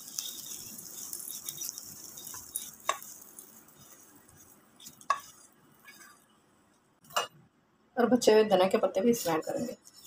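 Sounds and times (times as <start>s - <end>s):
hot oil crackling: 0.0s - 6.2s.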